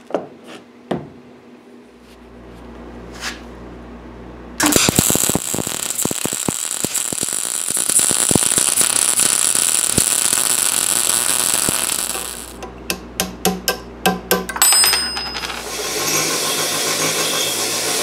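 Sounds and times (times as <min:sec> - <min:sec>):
welder arc crackling: 0:04.6 - 0:12.6.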